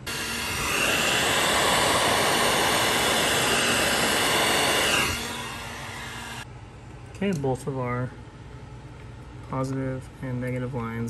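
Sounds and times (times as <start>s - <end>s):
heat gun hissing and whining: 0.0s - 6.5s.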